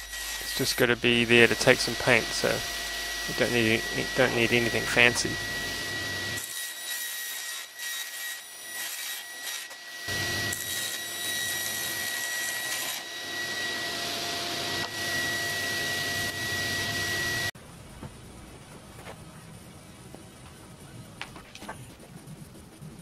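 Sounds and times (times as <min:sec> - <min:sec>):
dust extraction hum: 0:00.0 - 0:08.0, 0:09.4 - 0:22.0
table saw cutting plywood: 0:00.0 - 0:17.5.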